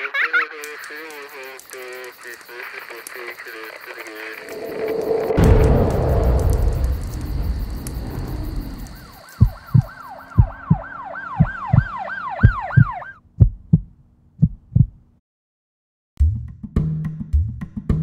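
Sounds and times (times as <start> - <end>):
rushing fire noise: 4.1 - 10.4
heartbeat thumping: 9.4 - 15.0
electronic yelp siren: 9.6 - 13.2.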